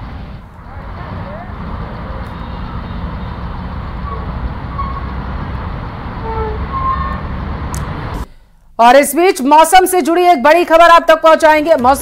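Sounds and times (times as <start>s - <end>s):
road traffic rumble: 0.0s - 8.3s.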